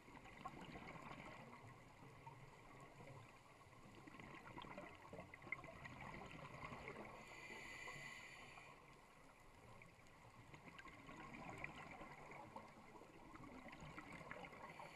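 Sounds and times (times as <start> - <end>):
underwater hiss: 7.0 - 8.9.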